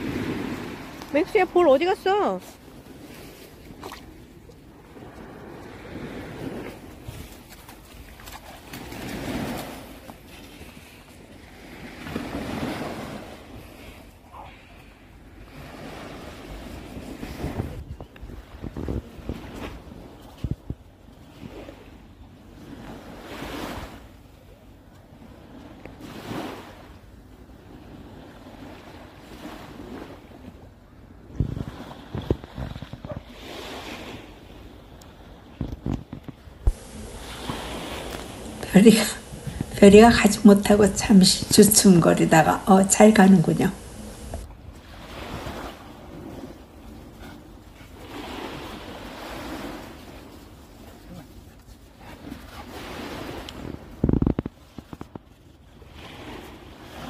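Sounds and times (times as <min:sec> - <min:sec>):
small waves washing on beach: 0:00.0 - 0:57.0
wind rumble on microphone: 0:15.5 - 0:24.1, 0:25.0 - 0:41.6, 0:52.2 - 0:57.0.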